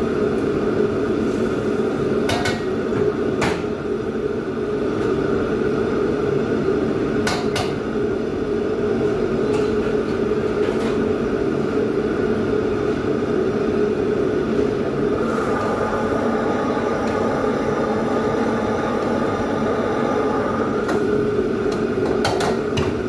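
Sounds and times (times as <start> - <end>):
gas wok burner: 0.0 - 5.0, 15.0 - 23.0
extractor hood fan running: 0.0 - 23.0.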